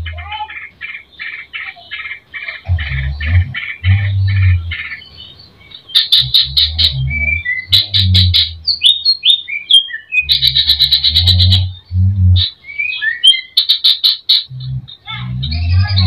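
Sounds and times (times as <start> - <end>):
bird singing rapid trills: 0.0 - 16.0.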